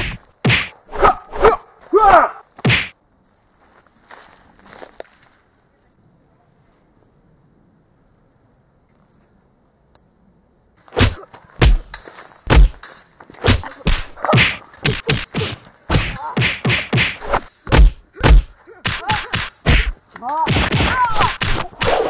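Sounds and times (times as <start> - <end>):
punch and kick whacks: 0.0 - 1.6, 2.6 - 3.0, 11.0 - 11.9, 12.5 - 12.8, 13.4 - 22.0.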